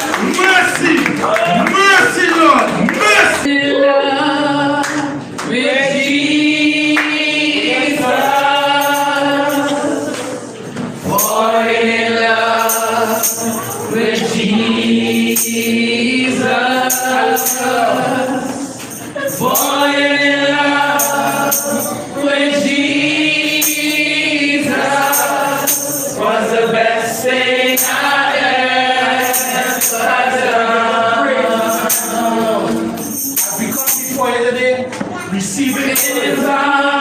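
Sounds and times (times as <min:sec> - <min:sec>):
jingling hand percussion: 0:08.1 - 0:10.0, 0:11.2 - 0:22.2, 0:23.3 - 0:30.6, 0:31.4 - 0:34.5, 0:35.6 - 0:36.6.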